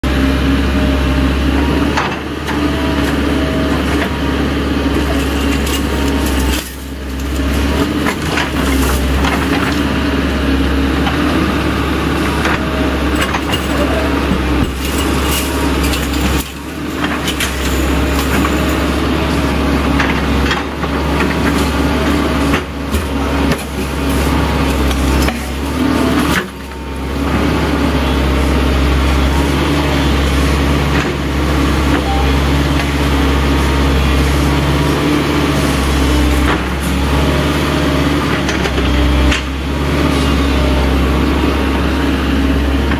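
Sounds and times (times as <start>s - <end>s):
excavator diesel engine running: 0.0s - 42.9s
chain-link fence rattling and scraping: 14.7s - 18.9s.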